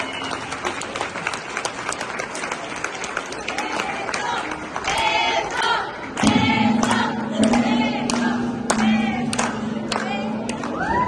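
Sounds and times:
scattered clapping: 0:00.0 - 0:11.0
steady low tone: 0:05.4 - 0:11.0
crowd cheering and whooping: 0:10.6 - 0:11.0.

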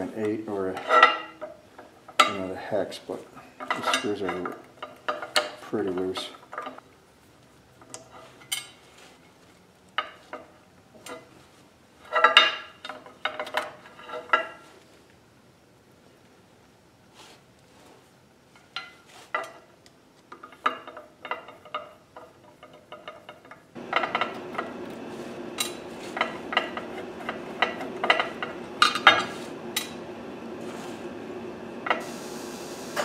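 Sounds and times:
steady hum: 0:23.7 - 0:33.0.

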